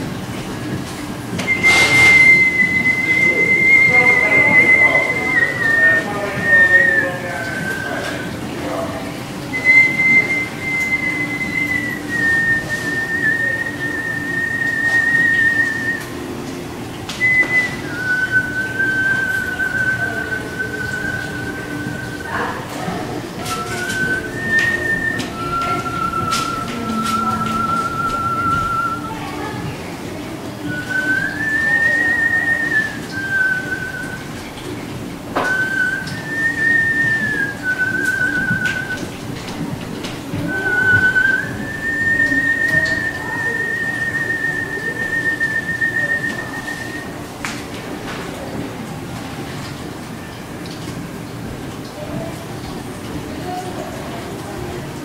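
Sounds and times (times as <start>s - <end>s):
man whistling held notes: 1.4s - 8.4s, 9.5s - 16.3s, 17.2s - 29.5s, 30.6s - 34.3s, 35.4s - 39.2s, 40.5s - 47.2s.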